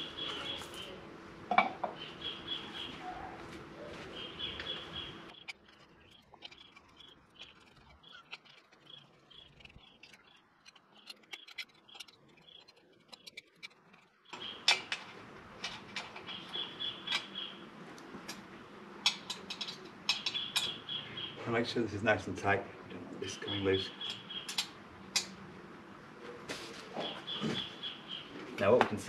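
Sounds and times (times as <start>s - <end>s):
steady background hum: 0.0s - 29.0s
metal parts clicking and knocking: 5.4s - 16.4s.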